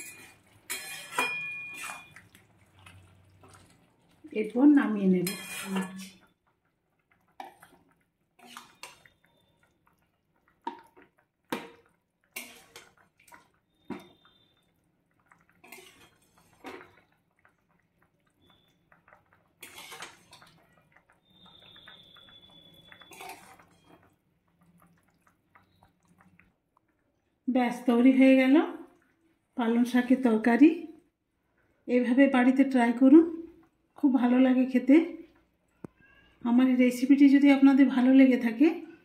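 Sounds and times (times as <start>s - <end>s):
metal spatula scraping a wok: 0.0s - 2.1s, 5.2s - 6.2s, 8.4s - 9.1s, 12.4s - 13.0s, 15.6s - 16.7s, 19.6s - 20.4s, 23.0s - 23.9s
wet plops of curry: 0.3s - 27.1s.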